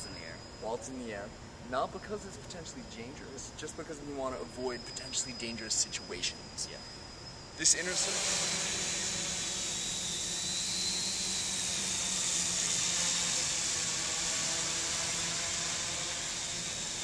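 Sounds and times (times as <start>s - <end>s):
drone propellers whining: 3.8s - 17.0s.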